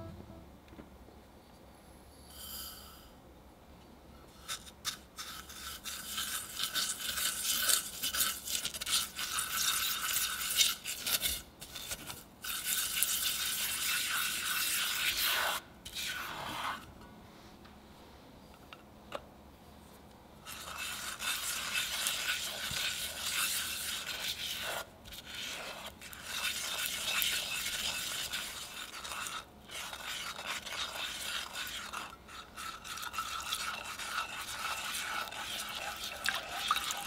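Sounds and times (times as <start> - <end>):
spatula scraping a saucepan: 4.3 - 17.0, 20.4 - 37.0.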